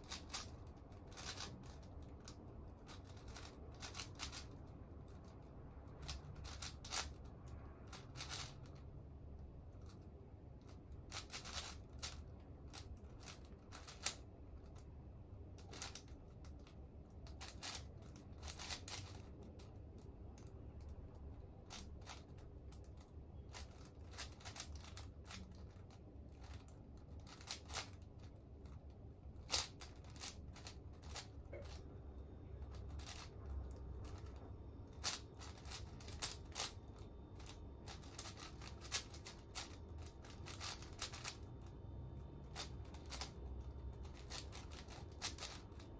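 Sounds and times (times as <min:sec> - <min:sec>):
puzzle cube layers clicking: 0:11.1 - 0:14.2, 0:29.4 - 0:31.8.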